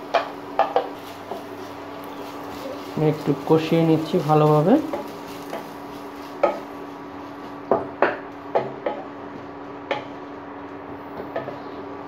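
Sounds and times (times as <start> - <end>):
steady low hum: 0.0 - 12.0
wooden spatula knocking on pot: 0.1 - 1.0, 6.4 - 6.7, 7.7 - 10.2.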